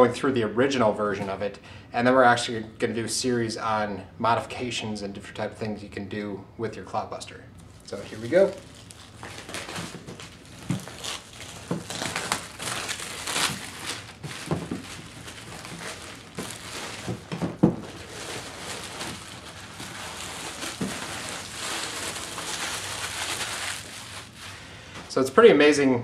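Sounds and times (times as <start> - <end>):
plastic wrap crinkling and tearing: 7.6 - 24.7
cardboard box knocks: 17.1 - 17.8.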